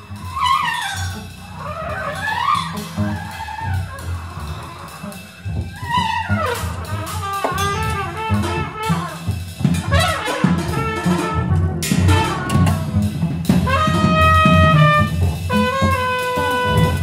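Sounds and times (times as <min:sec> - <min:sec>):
double bass notes: 0:00.0 - 0:17.0
trumpet gliding notes: 0:00.0 - 0:17.0
percussion hits: 0:06.7 - 0:08.7, 0:09.6 - 0:15.9.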